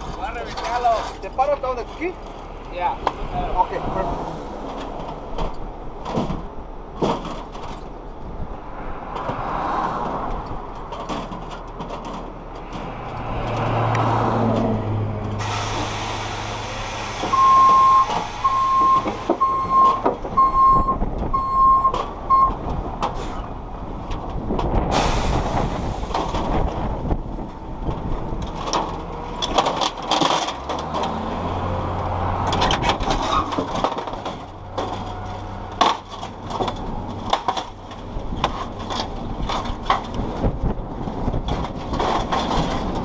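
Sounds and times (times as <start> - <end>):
diesel truck engine running: 10.0 - 43.0
air hissing: 15.4 - 19.3
reversing alarm beeping: 17.3 - 22.5.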